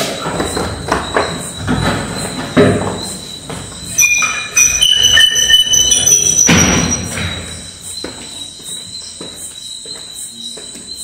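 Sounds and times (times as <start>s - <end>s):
door thudding: 0.2s - 7.8s
door hinges squealing: 0.2s - 8.0s.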